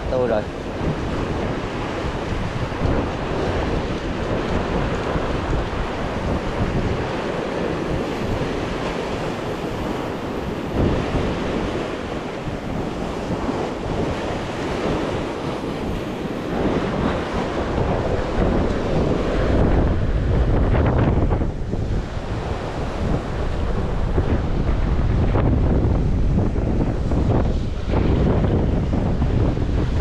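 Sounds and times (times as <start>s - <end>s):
surf washing against shore: 0.0s - 30.0s
wind buffeting microphone: 0.0s - 30.0s.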